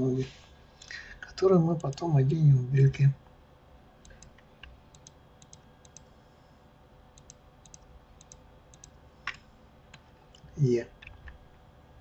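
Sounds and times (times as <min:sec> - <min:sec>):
mouse and keyboard clicking: 0:04.0 - 0:06.0, 0:07.2 - 0:09.4.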